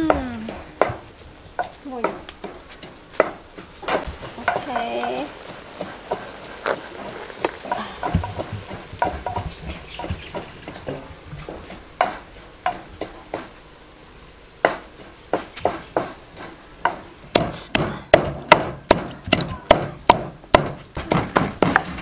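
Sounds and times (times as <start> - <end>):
faint cooking sizzle: 0.0 - 17.3.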